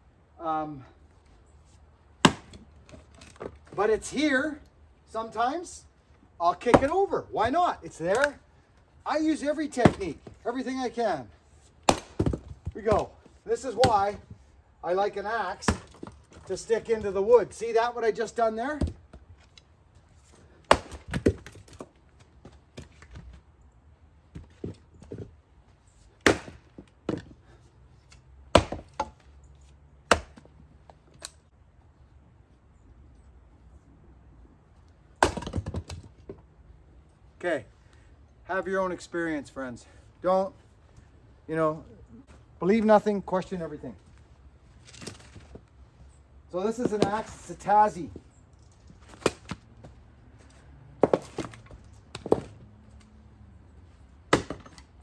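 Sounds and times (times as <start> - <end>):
axe chopping firewood: 2.2 - 3.9, 6.5 - 8.4, 9.6 - 10.7, 11.7 - 14.4, 15.4 - 17.6, 18.7 - 19.3, 20.4 - 23.3, 26.1 - 29.3, 30.0 - 30.5, 35.2 - 36.4, 44.9 - 45.6, 46.7 - 47.6, 49.0 - 49.6, 51.0 - 52.6, 54.3 - 55.0.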